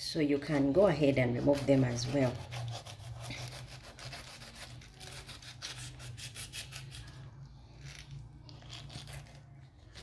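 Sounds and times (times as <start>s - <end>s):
knife rasping through pineapple skin: 1.0s - 7.2s, 8.6s - 10.0s.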